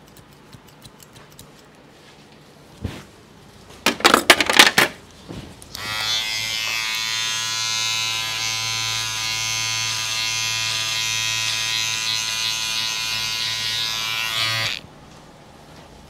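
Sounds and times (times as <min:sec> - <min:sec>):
electric hair clipper buzzing: 0:05.7 - 0:14.8.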